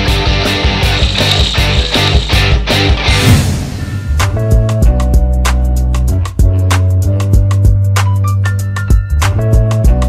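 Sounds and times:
driving drum beat: 0.0 - 8.0
rock music: 0.0 - 10.0.

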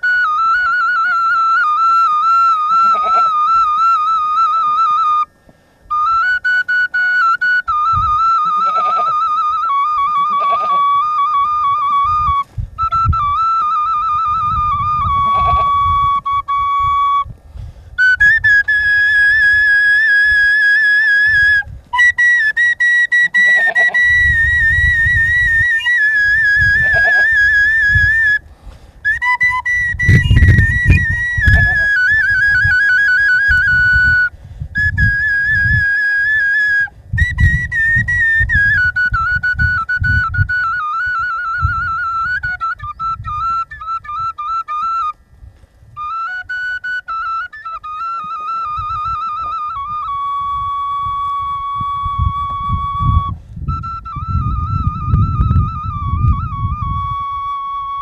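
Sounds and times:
wooden flute playing folk tune: 0.0 - 58.0.

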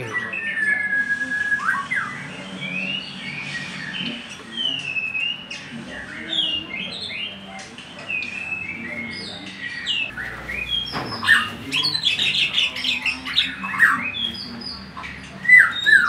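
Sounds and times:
bird singing whistled phrases: 0.0 - 14.8, 15.4 - 16.0.

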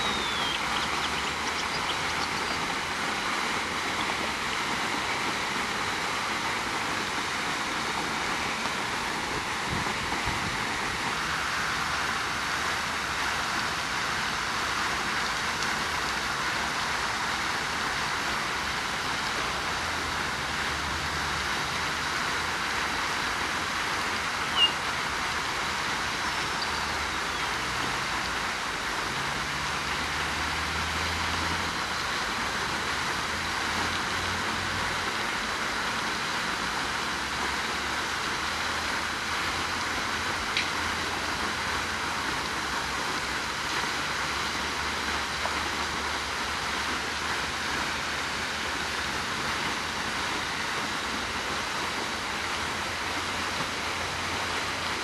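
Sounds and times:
short high chirp: 0.0 - 0.9
steady hissing noise: 0.0 - 55.0.

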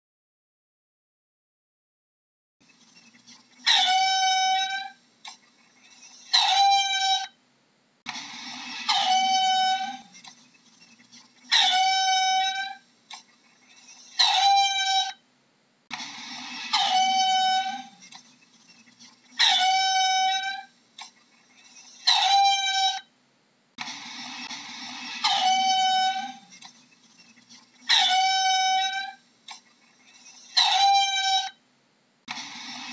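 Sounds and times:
mongoose squealing calls: 3.6 - 5.0, 5.8 - 7.4, 8.2 - 10.2, 11.4 - 15.2, 15.9 - 18.2, 18.9 - 23.1, 23.8 - 31.6.

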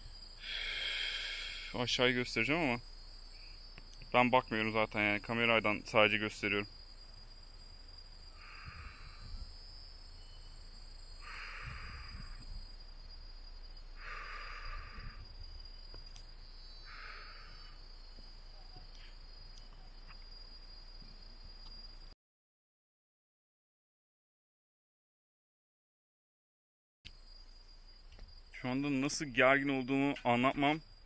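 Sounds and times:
insects droning: 0.0 - 22.2, 27.1 - 31.0
short hisses: 0.4 - 1.8.

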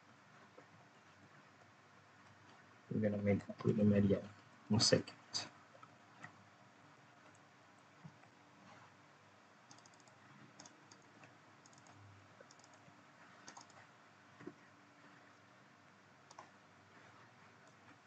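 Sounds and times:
computer keyboard keystrokes: 9.7 - 13.8, 16.3 - 16.5.

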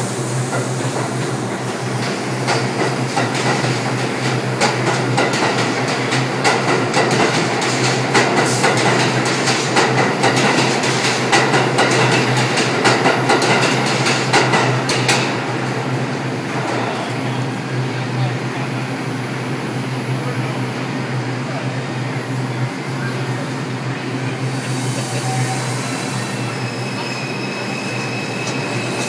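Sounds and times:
train wheels clacking over rail joints: 0.5 - 15.4.

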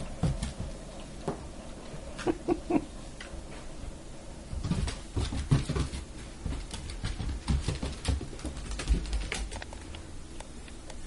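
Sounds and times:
puppy claws scrambling on wood floor: 4.5 - 9.9.

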